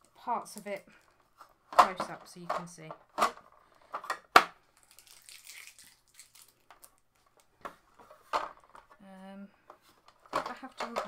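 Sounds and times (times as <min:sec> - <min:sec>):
plastic packaging crinkling: 0:04.7 - 0:07.5.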